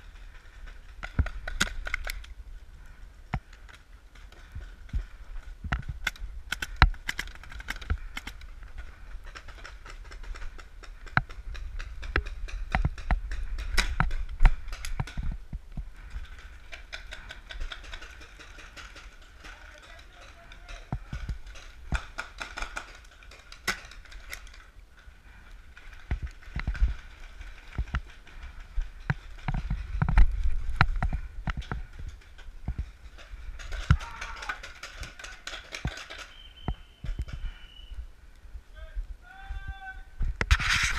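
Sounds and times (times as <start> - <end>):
low wind rumble: 0.0 - 19.4, 23.9 - 35.2
paintball markers firing: 1.0 - 2.3, 5.8 - 8.5.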